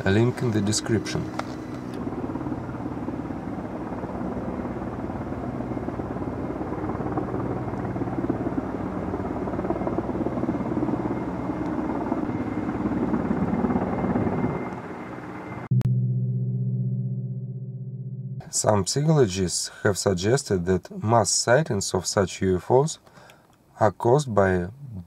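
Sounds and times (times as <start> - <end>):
helicopter rotor beating: 0.0 - 15.7
low engine hum: 0.0 - 18.5.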